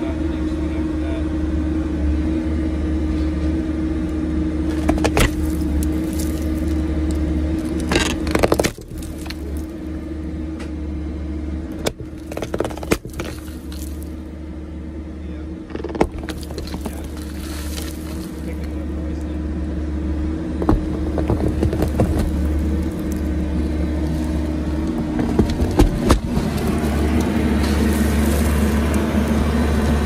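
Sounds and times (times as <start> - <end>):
engine running under load: 0.0 - 30.0
clay pipe cracking and scraping: 4.7 - 10.0, 11.7 - 14.2, 15.6 - 18.8, 20.6 - 30.0.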